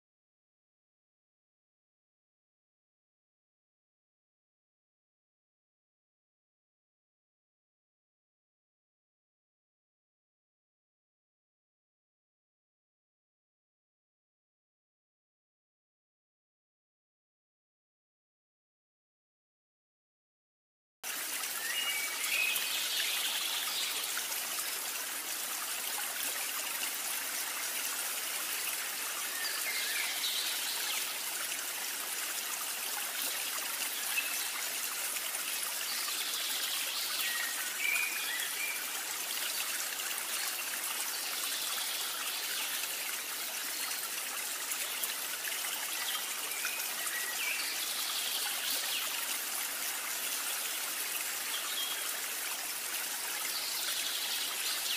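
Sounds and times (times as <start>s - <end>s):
stream water trickling: 21.0s - 54.9s.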